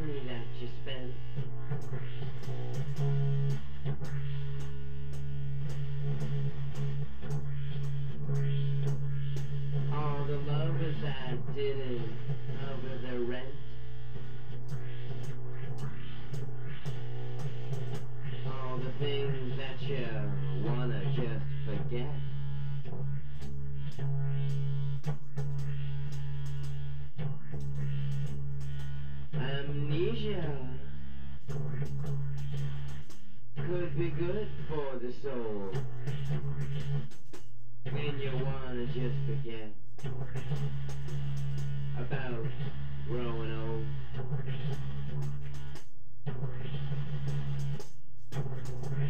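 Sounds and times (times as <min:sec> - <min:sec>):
held low bass note: 0:00.0 - 0:37.1
percussive ticks: 0:01.4 - 0:09.8, 0:14.5 - 0:18.2, 0:23.3 - 0:29.0, 0:31.4 - 0:33.7, 0:35.5 - 0:38.4, 0:40.0 - 0:41.8, 0:44.2 - 0:46.0, 0:46.6 - 0:49.0.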